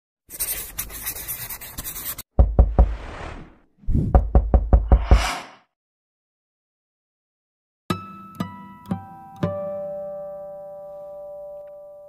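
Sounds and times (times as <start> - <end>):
sharp knocks with deep thuds: 2.3 - 3.0, 4.0 - 5.3.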